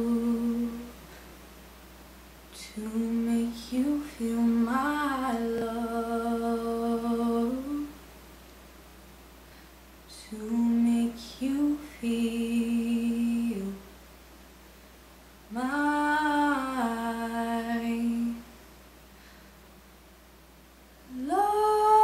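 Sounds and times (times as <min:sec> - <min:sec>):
girl singing wordless notes: 0:00.0 - 0:01.3, 0:02.5 - 0:08.0, 0:10.1 - 0:14.0, 0:15.5 - 0:18.6, 0:21.0 - 0:22.0.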